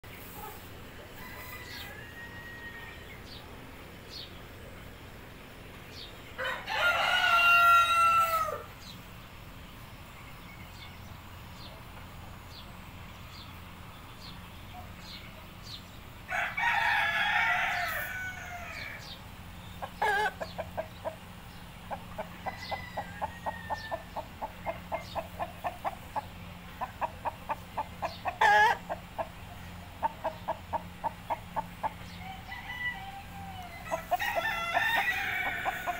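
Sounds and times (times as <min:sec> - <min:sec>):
rooster crowing: 0:01.2 - 0:03.4, 0:06.4 - 0:08.7, 0:16.3 - 0:19.1, 0:22.4 - 0:24.0, 0:32.1 - 0:35.9.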